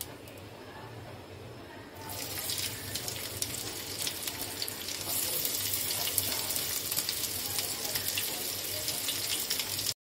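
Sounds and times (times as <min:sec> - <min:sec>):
onion sizzling in hot oil: 0:02.0 - 0:10.0.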